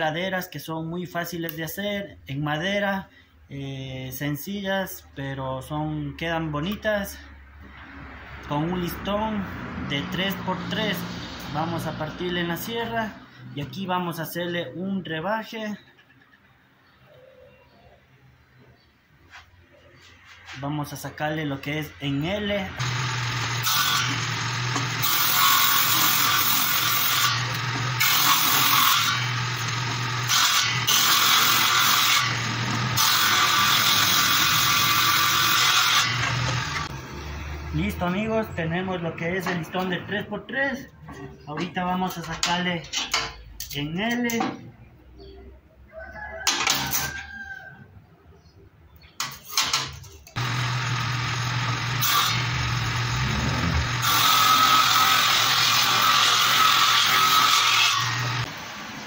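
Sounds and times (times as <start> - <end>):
saw ripping wood: 22.8 - 37.0, 50.4 - 58.8
table saw motor humming: 22.8 - 37.8, 50.4 - 59.0
rooster crowing: 45.9 - 48.0.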